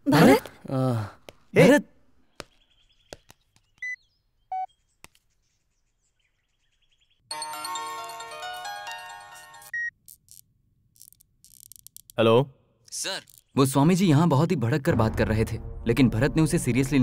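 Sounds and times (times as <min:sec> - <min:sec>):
melodic phone chime: 0:07.3 - 0:09.9.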